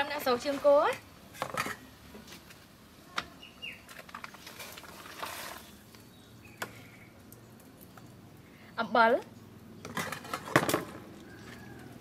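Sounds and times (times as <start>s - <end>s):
bird chirping: 3.4s - 3.9s, 5.6s - 9.9s.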